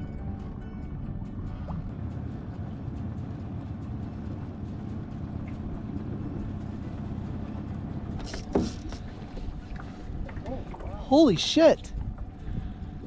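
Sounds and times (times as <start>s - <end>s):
outboard motor running: 0.0s - 13.0s.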